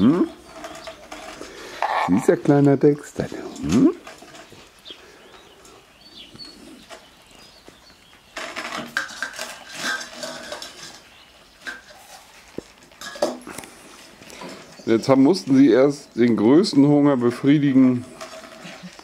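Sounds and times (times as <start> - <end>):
birds chirping: 0.0 - 19.0
steel bowls scraping on tiles: 0.2 - 2.4, 8.5 - 12.4, 17.3 - 19.0.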